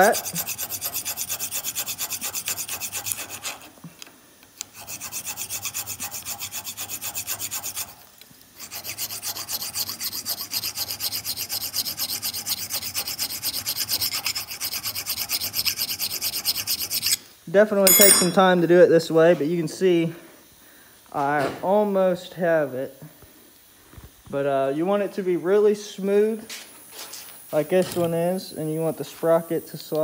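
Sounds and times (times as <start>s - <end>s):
hand file rasping on steel: 0.0s - 3.8s, 4.6s - 8.0s, 8.6s - 17.2s.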